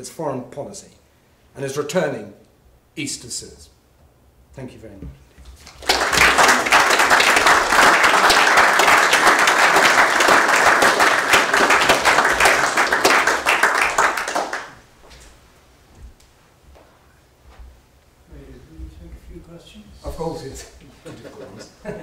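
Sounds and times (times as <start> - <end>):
audience applauding: 5.6 - 14.9.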